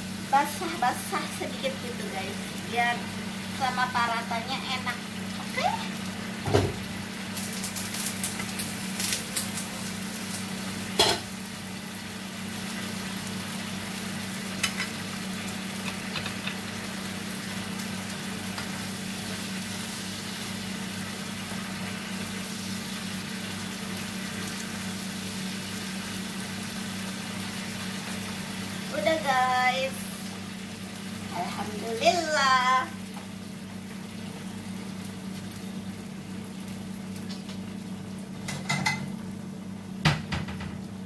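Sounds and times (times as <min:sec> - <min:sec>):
livers sizzling in frying pan: 0:00.0 - 0:41.0
spatula and lid knocking pan: 0:11.0 - 0:11.3, 0:40.0 - 0:40.8.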